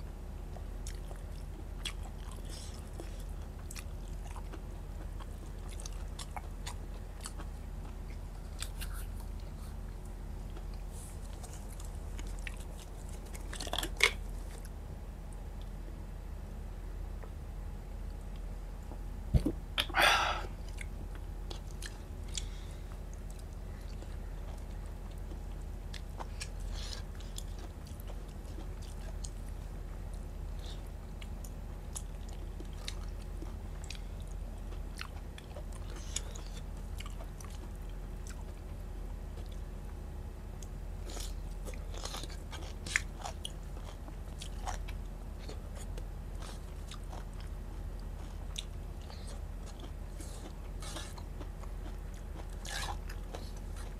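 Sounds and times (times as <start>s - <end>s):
low steady hum: 0.0s - 53.9s
person chewing: 0.5s - 9.8s, 10.4s - 14.7s, 19.4s - 38.7s, 39.4s - 39.6s, 40.6s - 53.9s
loud breathy sound: 19.9s - 20.6s.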